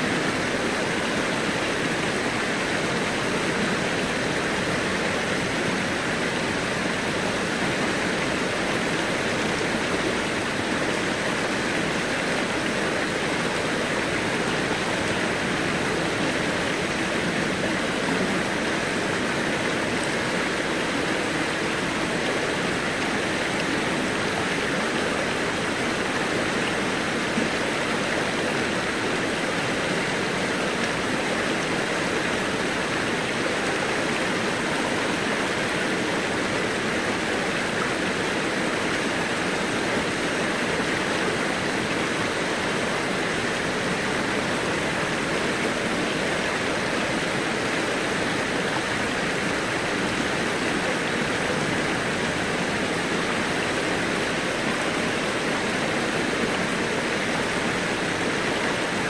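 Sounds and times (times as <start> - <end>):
stream running over stones: 0.0 - 59.0.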